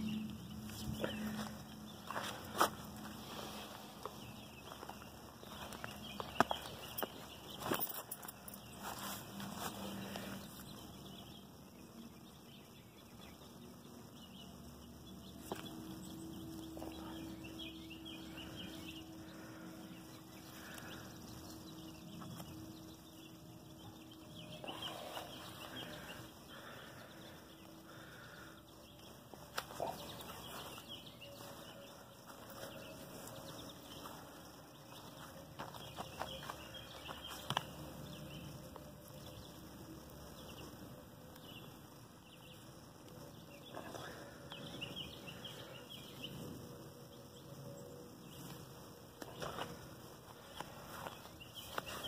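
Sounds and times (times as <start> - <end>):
steady low hum: 0.0 - 52.0
leaves rustling: 4.6 - 10.6, 49.2 - 52.0.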